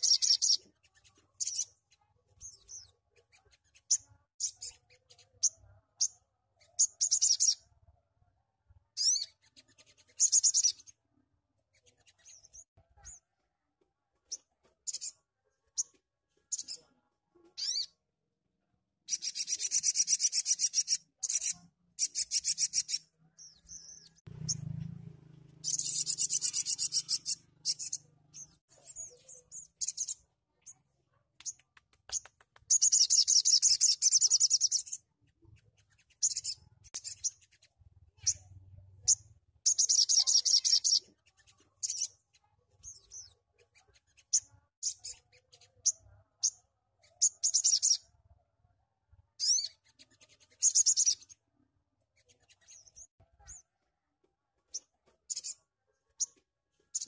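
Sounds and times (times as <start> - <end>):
bird chips: 0.0 - 7.6, 9.0 - 11.0, 19.1 - 24.8, 25.4 - 30.8, 31.4 - 48.0.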